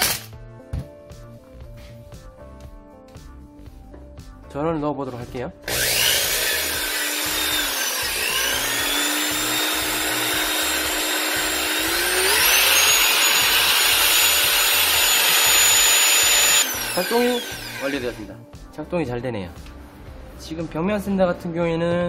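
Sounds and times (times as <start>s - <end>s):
sander motor whining: 5.7s - 18.3s.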